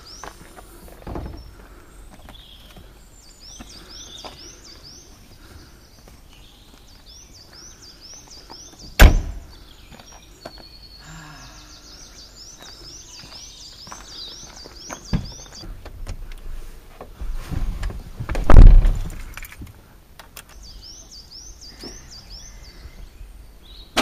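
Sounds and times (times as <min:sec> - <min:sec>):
car tailgate slamming shut: 0:09.0 - 0:09.5.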